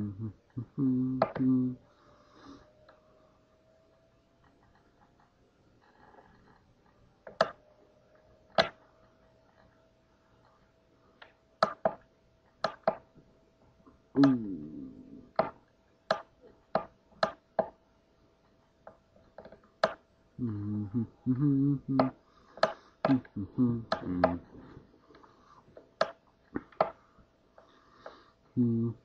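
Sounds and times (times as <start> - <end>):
low vocal hum: 0.0 - 2.7, 14.1 - 15.6, 20.4 - 22.2, 23.0 - 24.9, 28.5 - 29.0.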